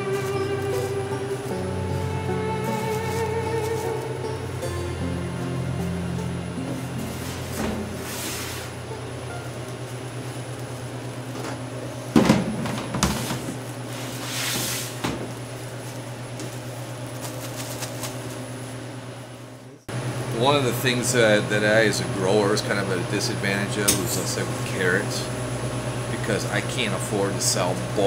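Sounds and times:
plastic bags rustling: 0:00.0 - 0:04.2, 0:13.2 - 0:18.6
refrigeration unit humming: 0:00.0 - 0:28.0.

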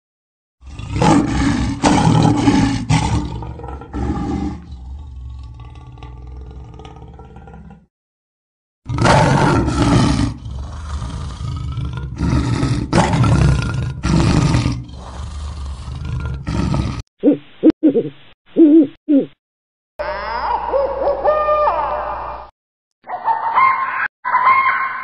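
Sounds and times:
lion roaring: 0:00.6 - 0:07.9, 0:08.9 - 0:17.0.

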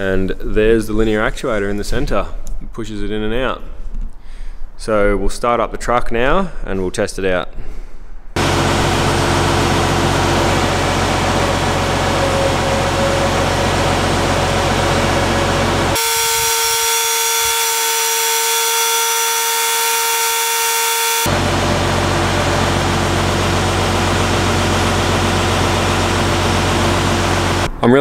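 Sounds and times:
truck engine idling: 0:08.4 - 0:16.2, 0:21.3 - 0:27.7
electric motor whine: 0:08.4 - 0:27.7.

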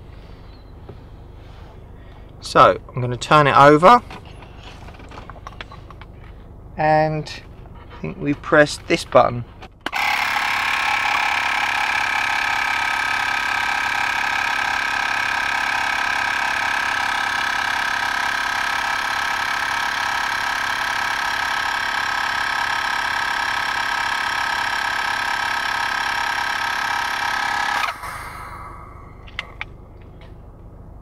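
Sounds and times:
espresso machine pump humming: 0:09.9 - 0:29.4.

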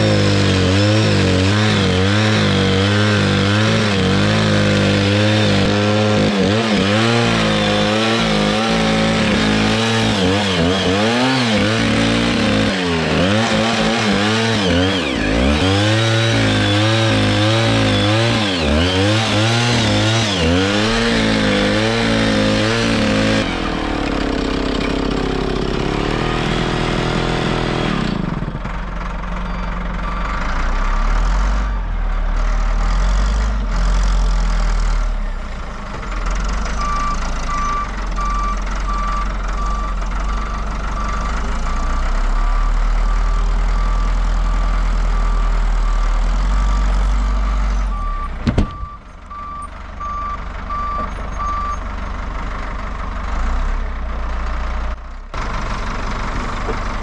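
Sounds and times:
chainsaw cutting: 0:00.0 - 0:28.7
wheel loader diesel engine: 0:00.0 - 0:57.0
reversing alarm beeping: 0:36.8 - 0:45.6, 0:46.4 - 0:52.0
sharp bang: 0:48.4 - 0:49.1.

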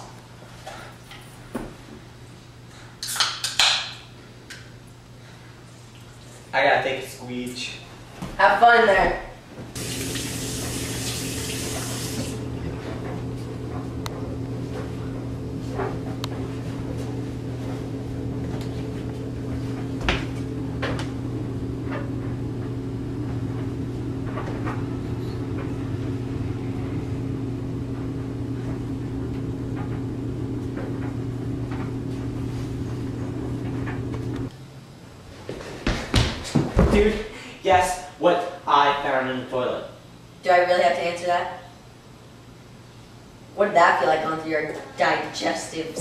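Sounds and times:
toilet flushing: 0:09.8 - 0:12.8
toilet tank refilling hum: 0:09.8 - 0:34.5.

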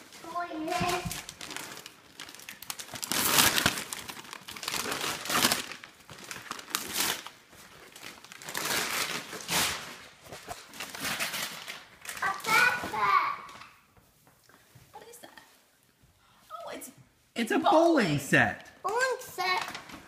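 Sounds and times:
gift paper crumpling and tearing: 0:00.0 - 0:12.8.

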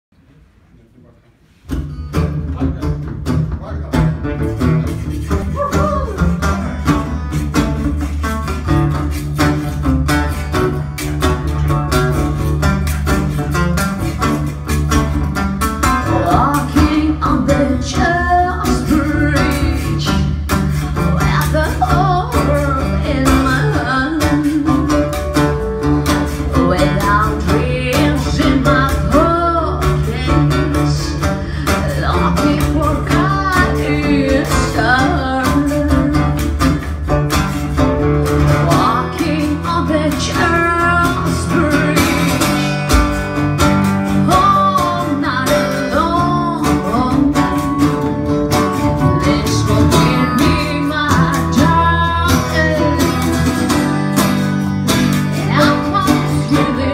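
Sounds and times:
guitars and keyboard: 0:01.7 - 0:56.9
woman singing: 0:05.4 - 0:06.7, 0:15.8 - 0:25.5, 0:26.2 - 0:36.9, 0:38.4 - 0:42.7, 0:44.1 - 0:54.1, 0:55.2 - 0:56.9.

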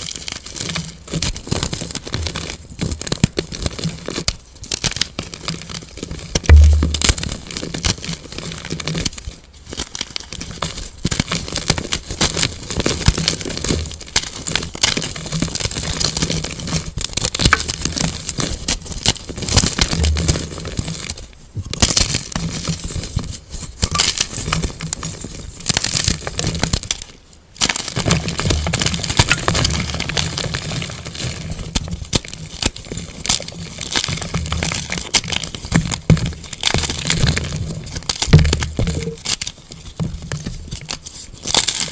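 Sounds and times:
chalk crunching and crumbling: 0:00.0 - 0:41.9.

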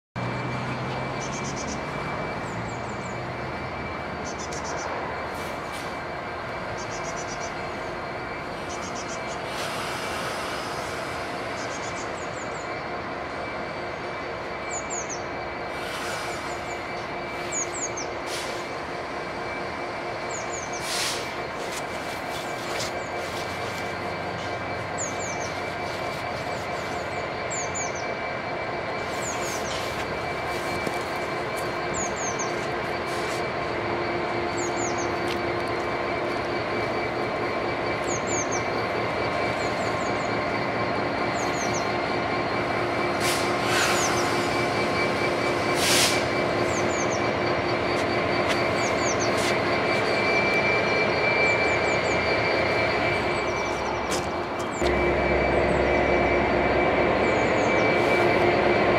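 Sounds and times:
diesel locomotive engine running: 0:00.0 - 0:58.9
high wheel squeal: 0:00.2 - 0:58.9.

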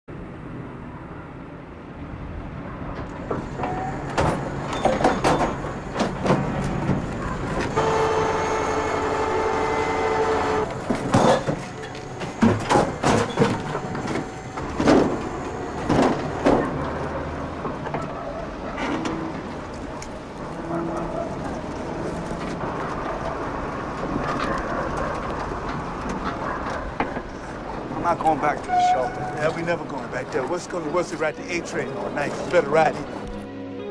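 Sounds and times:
metal clanks and bangs: 0:02.9 - 0:07.8, 0:10.8 - 0:19.6.

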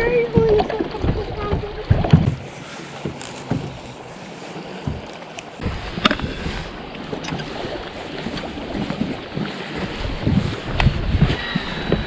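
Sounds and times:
waves lapping against boat hull: 0:00.0 - 0:12.0
wind buffeting microphone: 0:04.8 - 0:12.0.

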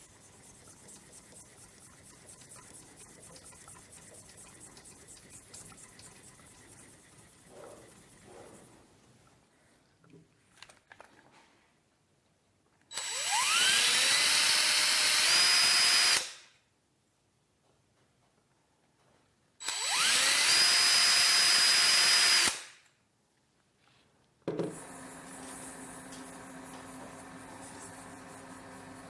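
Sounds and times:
quiet steady hum: 0:00.0 - 0:10.6
cordless drill motor whine: 0:12.9 - 0:16.2, 0:19.6 - 0:22.5.

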